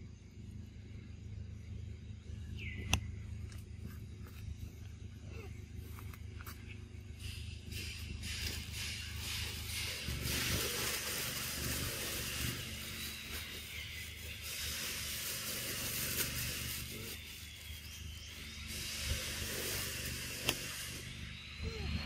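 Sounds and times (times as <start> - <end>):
low mechanical hum: 0.0 - 22.0
even hiss: 7.2 - 21.8.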